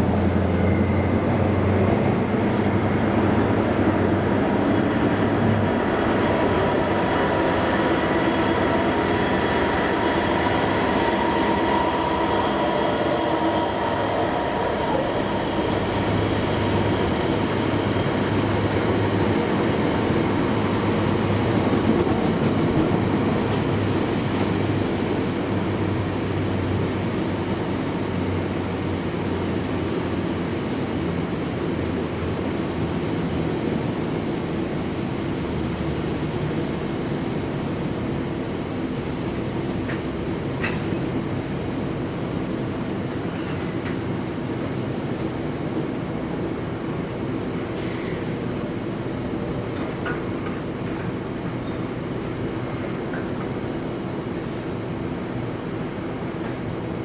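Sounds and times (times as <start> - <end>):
diesel locomotive passing: 0.0 - 57.0
high wheel squeal: 8.2 - 19.5.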